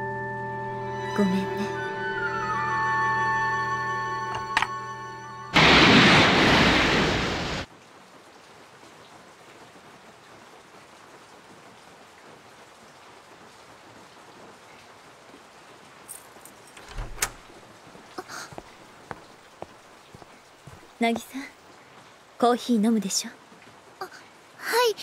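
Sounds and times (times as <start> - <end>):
soft rain patter indoors: 0.0 - 25.0
heavy downpour: 5.5 - 25.0.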